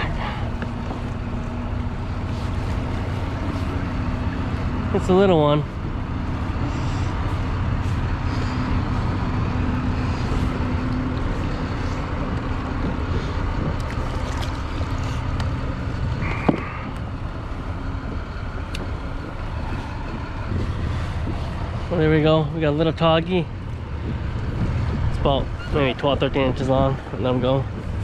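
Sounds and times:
road traffic rumble: 0.0 - 28.0
wind: 0.0 - 28.0
water noise: 7.5 - 22.7.

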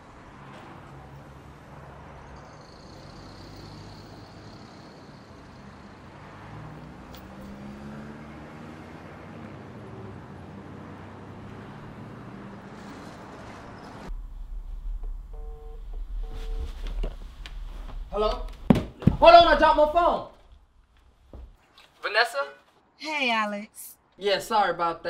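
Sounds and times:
traffic and engine hum: 0.0 - 23.0
loud very low hum: 14.1 - 17.0.

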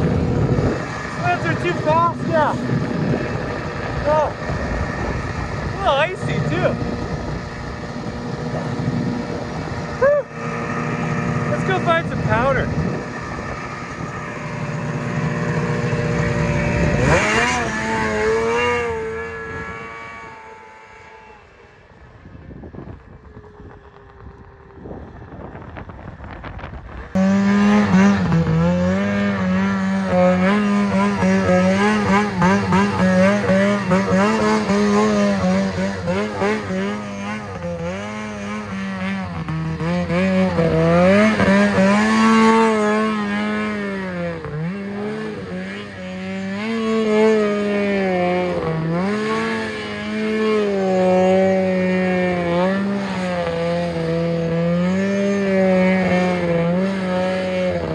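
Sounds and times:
snowmobile engine revving: 0.0 - 57.9.

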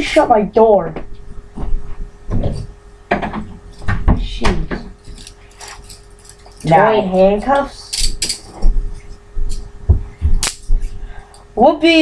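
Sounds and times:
metal handcuffs jingling: 5.0 - 8.6.

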